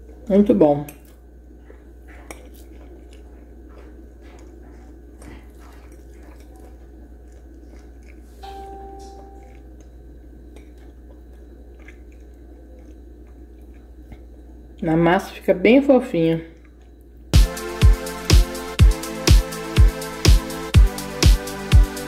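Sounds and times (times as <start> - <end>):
steady low hum: 0.0 - 22.0
short steady tone: 8.4 - 9.5.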